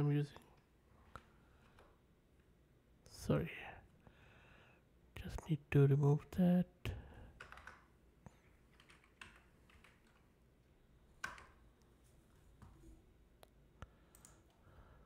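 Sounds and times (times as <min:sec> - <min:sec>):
keyboard keystrokes: 0:07.4 - 0:07.9, 0:08.7 - 0:10.3, 0:11.2 - 0:11.6.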